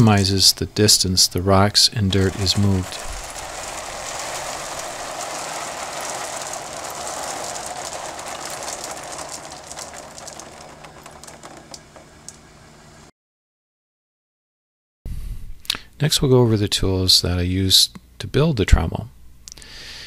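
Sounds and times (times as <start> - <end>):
rocks tumbling in rotating drum: 1.6 - 12.6.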